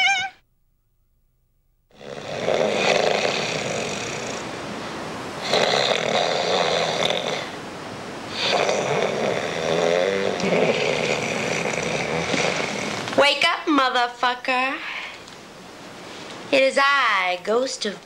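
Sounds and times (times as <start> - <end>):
man snoring: 1.9 - 4.5, 5.4 - 7.6, 8.3 - 13.1.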